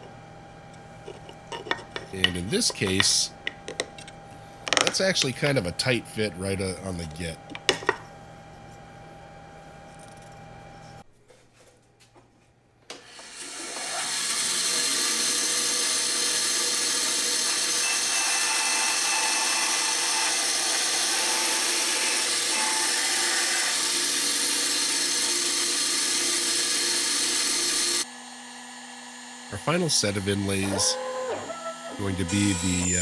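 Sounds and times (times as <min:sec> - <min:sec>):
bandsaw cutting wood: 0:13.0 - 0:33.0
bandsaw running: 0:13.0 - 0:33.0.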